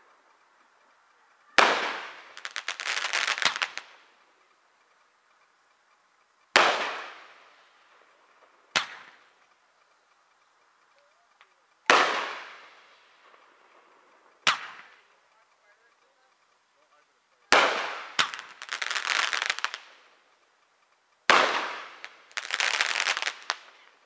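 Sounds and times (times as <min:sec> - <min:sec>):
rolling echo: 0:00.0 - 0:02.8, 0:03.4 - 0:18.8, 0:19.6 - 0:22.4
firework shells bursting: 0:01.4 - 0:24.0.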